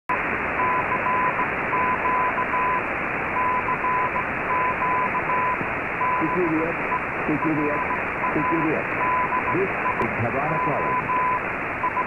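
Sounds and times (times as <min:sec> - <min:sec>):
radio static: 0:00.1 - 0:12.0
morse-like beeps: 0:03.4 - 0:12.0.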